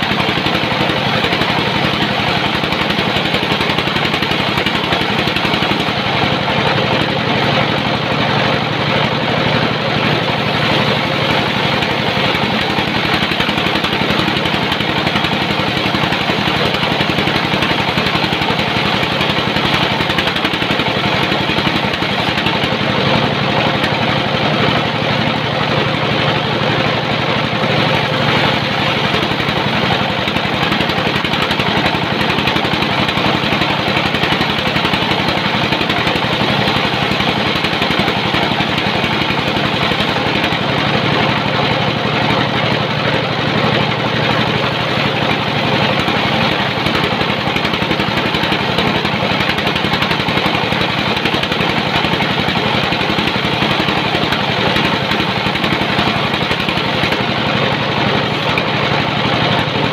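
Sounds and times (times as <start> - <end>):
sawmill machinery drone: 0.0 - 59.9.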